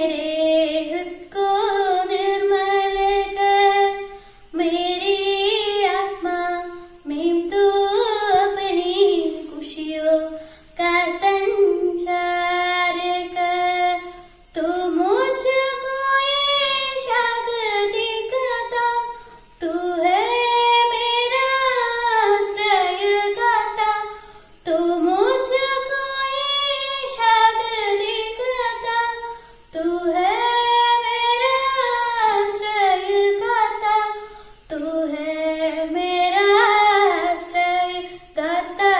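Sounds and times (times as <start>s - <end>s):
girl singing unaccompanied: 0.0s - 38.9s.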